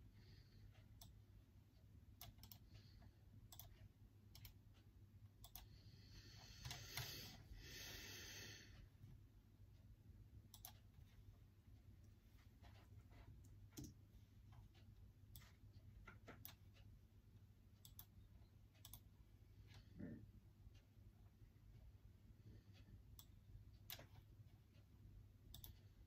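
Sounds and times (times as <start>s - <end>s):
computer keys clicking: 0.8s - 1.2s, 2.0s - 5.8s, 6.4s - 7.4s, 10.4s - 11.1s, 12.6s - 16.9s, 17.8s - 19.2s, 23.1s - 24.3s, 25.4s - 26.0s.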